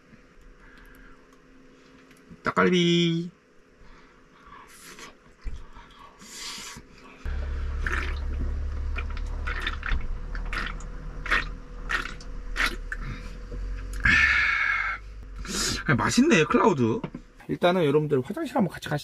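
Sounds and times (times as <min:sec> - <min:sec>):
low steady hum: 0:00.0 - 0:19.0
man chewing food: 0:04.8 - 0:14.1
gulping swallows: 0:09.0 - 0:13.3.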